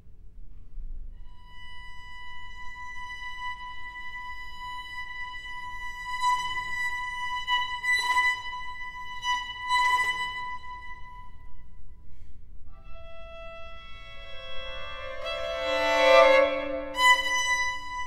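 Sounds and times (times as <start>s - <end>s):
lower bowed string note: 12.7s - 18.0s
high bowed string note: 12.8s - 18.0s.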